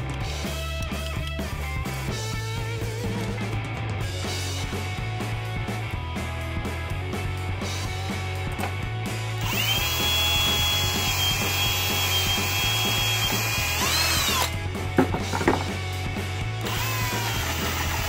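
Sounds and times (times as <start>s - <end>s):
cordless drill whining: 9.4s - 14.6s, 16.6s - 18.0s.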